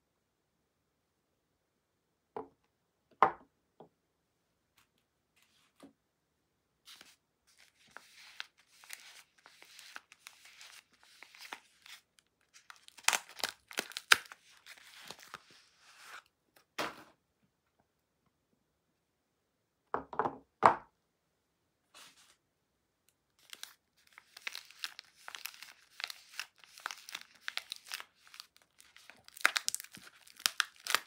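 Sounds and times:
paper wrapper crinkling and tearing: 6.9 - 16.2, 23.4 - 31.0.

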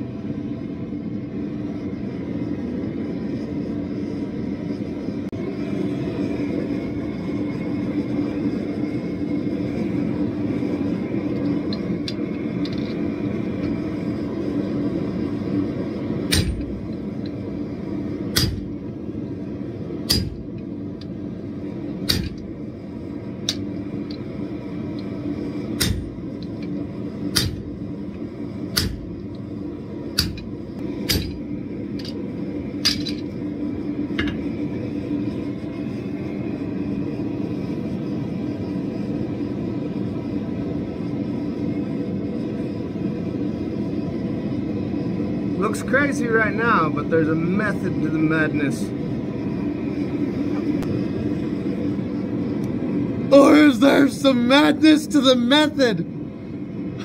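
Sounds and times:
gas forge burner roaring: 0.0 - 57.0
hammer striking steel on anvil: 16.3 - 16.7, 18.3 - 18.6, 20.1 - 20.4, 22.0 - 22.4, 25.8 - 26.1, 28.8 - 29.0, 31.0 - 31.4.

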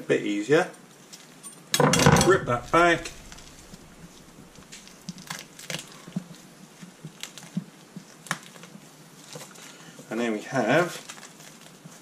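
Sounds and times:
skin tearing from bird breast: 4.6 - 6.2.

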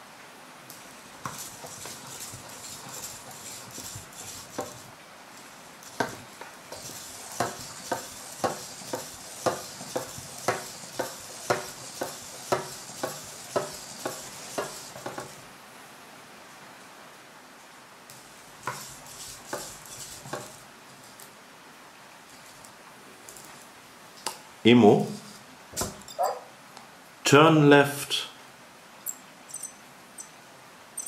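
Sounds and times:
robot feet tapping on wood: 1.2 - 4.9, 5.8 - 15.4, 18.6 - 20.6.

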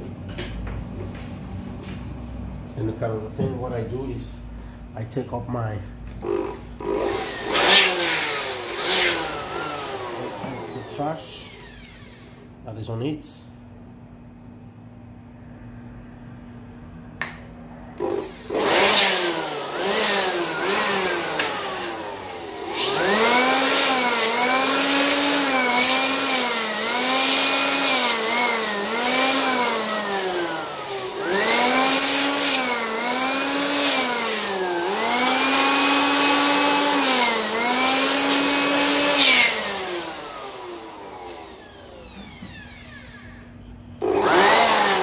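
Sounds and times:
electric blower motor whine: 6.1 - 12.6, 17.2 - 45.0.

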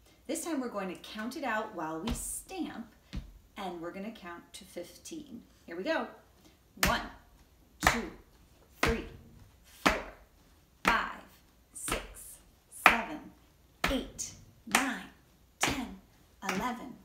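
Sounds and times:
feet stamping on wooden floor: 3.1 - 3.4.

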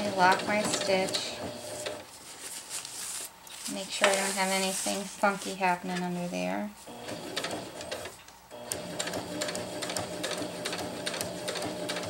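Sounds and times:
sewing machine stitching: 0.0 - 2.0, 6.9 - 12.0.

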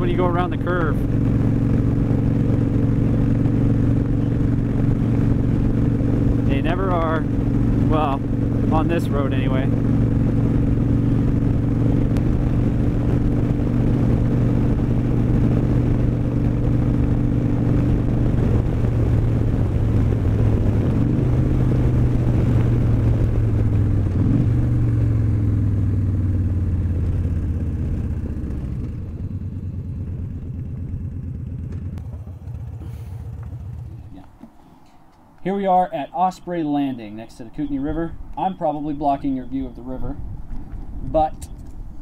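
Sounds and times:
motorcycle engine running: 0.0 - 34.8
wind rushing: 0.8 - 25.2.

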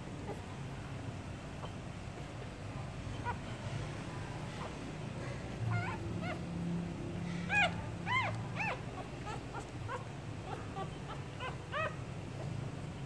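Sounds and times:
puppies squeaking: 1.4 - 13.0.

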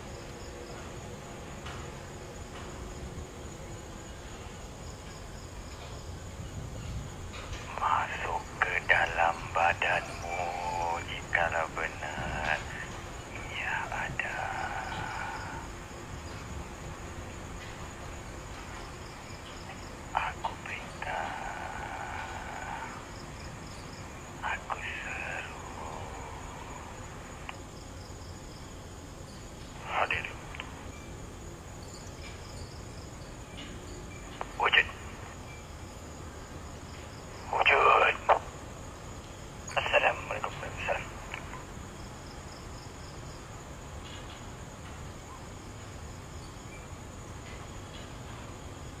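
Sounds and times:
background hiss: 0.0 - 49.0
night insects trilling: 0.0 - 49.0.

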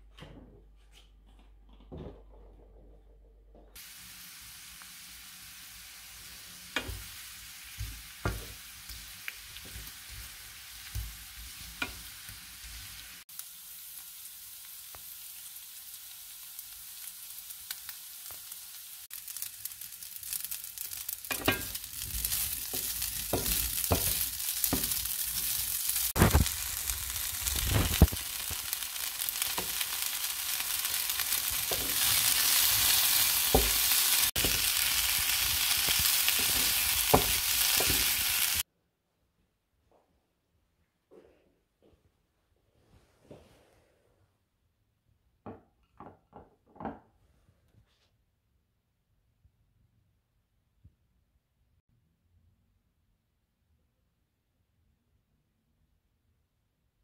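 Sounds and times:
food sizzling in a frying pan: 3.8 - 38.7
wooden spatula scraping a pan: 21.3 - 26.4, 30.8 - 38.6.

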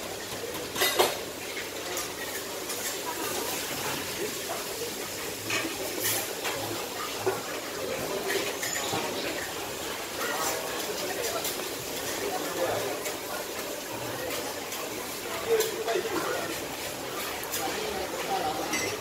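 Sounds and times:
faint voices: 0.0 - 19.0.

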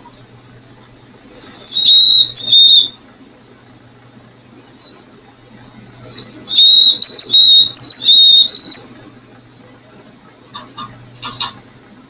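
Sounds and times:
two-note whistle from speaker: 1.5 - 3.0, 6.0 - 9.0.

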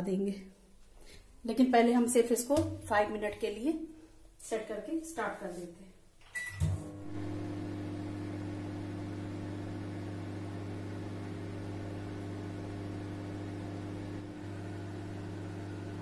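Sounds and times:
microwave oven humming: 6.4 - 16.0.

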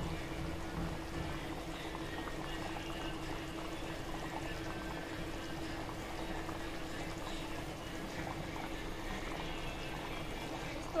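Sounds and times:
curry bubbling in a pan: 0.0 - 11.0.

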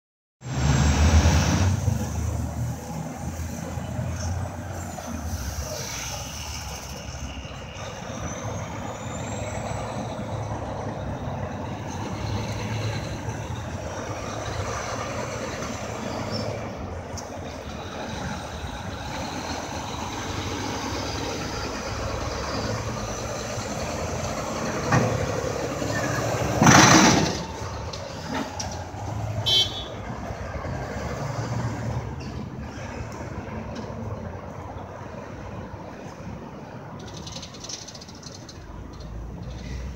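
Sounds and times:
diesel truck engine rumble: 0.4 - 39.9
street traffic: 0.4 - 39.9.

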